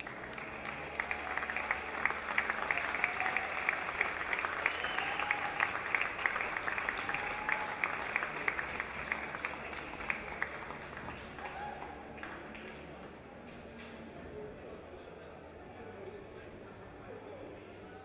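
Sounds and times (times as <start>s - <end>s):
audience applauding: 0.0s - 13.0s
rhythmic clapping: 0.0s - 13.2s.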